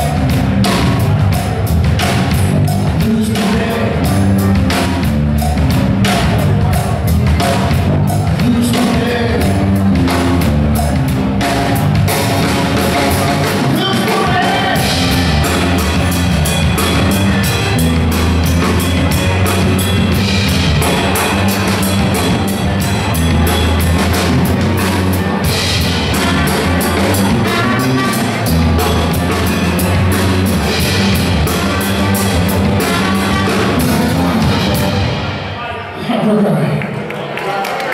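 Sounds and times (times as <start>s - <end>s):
electric bass: 0.0s - 35.7s
guitar: 0.0s - 35.7s
drum kit: 0.0s - 36.0s
trumpet: 12.1s - 35.8s.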